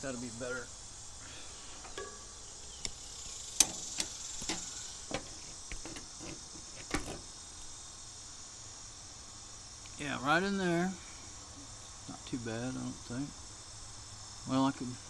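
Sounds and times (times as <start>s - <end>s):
insects chirring: 0.0s - 15.0s
object clicks and knocks: 1.8s - 2.2s.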